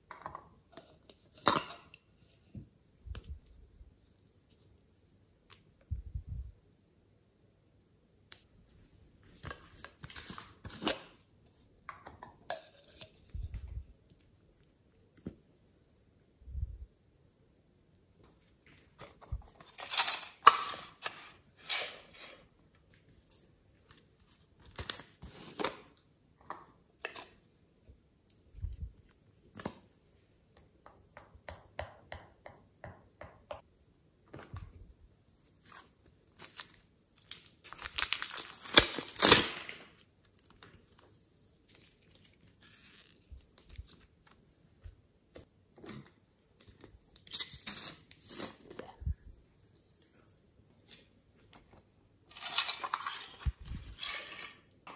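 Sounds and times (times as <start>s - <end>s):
plastic crinkling and rustling: 35.6s - 44.4s.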